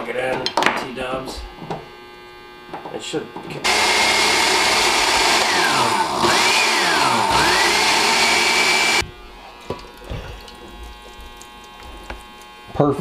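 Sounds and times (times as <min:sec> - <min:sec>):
blender motor whining: 0:03.6 - 0:09.0.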